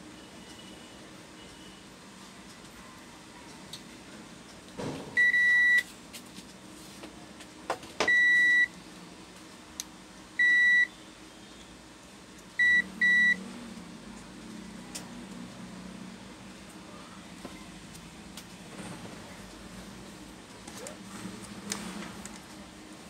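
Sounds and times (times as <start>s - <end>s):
multimeter beeps: 5.2s - 5.9s, 8.0s - 8.7s, 10.4s - 10.9s, 12.6s - 13.4s.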